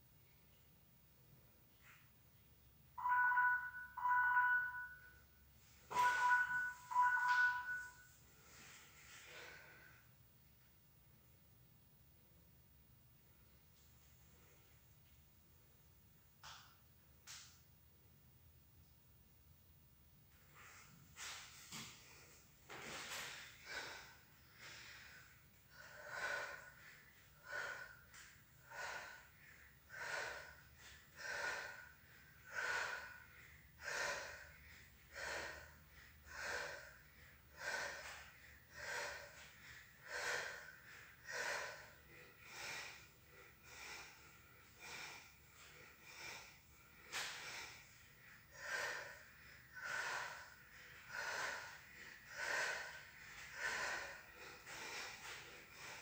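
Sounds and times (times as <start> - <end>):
woman breathing hard: 5.9 - 10.2, 20.6 - 56.0.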